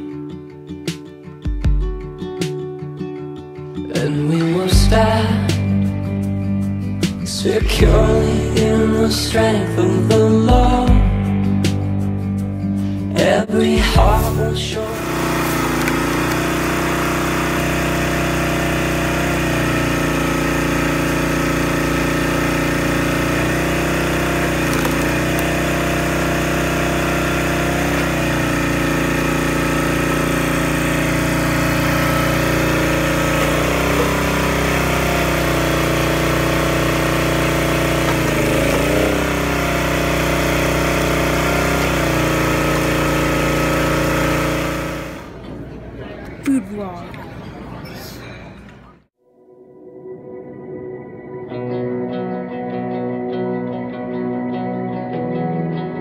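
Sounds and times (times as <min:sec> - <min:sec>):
log splitter engine running: 0:14.0 - 0:46.6.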